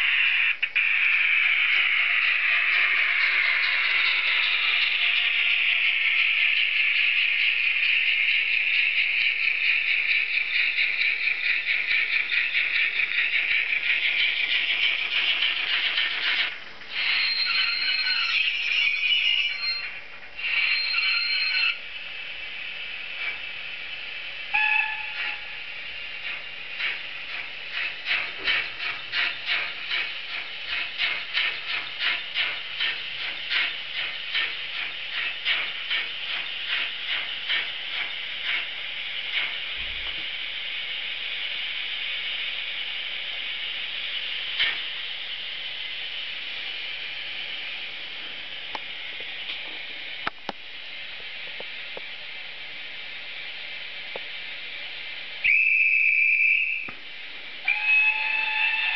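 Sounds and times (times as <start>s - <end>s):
steam hiss: 0.0s - 19.8s, 20.4s - 55.5s, 56.5s - 58.9s
steam locomotive exhaust chuffs: 0.0s - 58.9s
brief tone: 17.0s - 19.9s, 20.6s - 21.8s, 24.5s - 25.6s.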